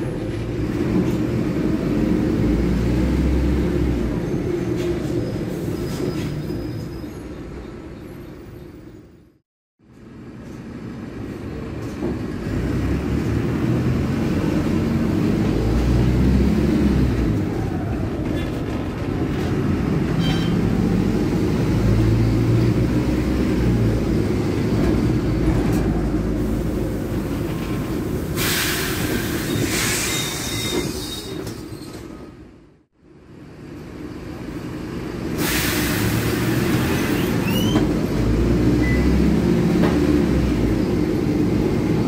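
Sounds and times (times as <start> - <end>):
bus diesel engine under load: 0.0 - 42.0
air hiss burst: 28.3 - 30.4, 35.4 - 37.2.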